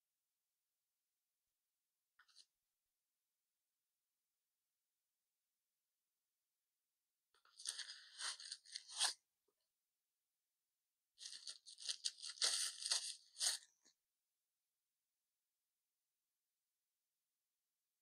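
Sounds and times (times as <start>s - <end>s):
plastic wrapping crinkling: 11.2s - 13.7s.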